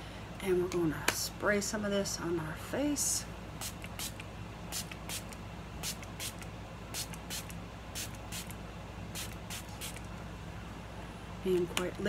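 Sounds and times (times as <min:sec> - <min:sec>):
spray bottle mist hisses: 0:03.6 - 0:04.2, 0:04.8 - 0:06.4, 0:07.0 - 0:08.5, 0:09.2 - 0:10.0.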